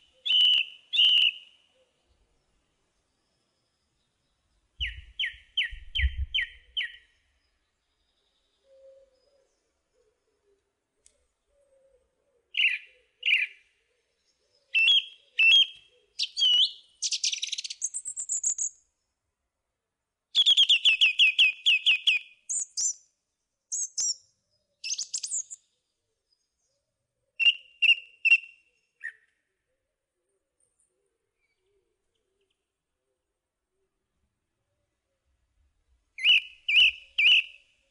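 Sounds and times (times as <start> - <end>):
songbird chirping and whistling: 0.0 - 1.7, 4.8 - 7.1, 12.5 - 13.6, 14.7 - 18.8, 20.4 - 23.0, 23.7 - 24.2, 24.8 - 25.6, 27.4 - 29.3, 36.2 - 37.7.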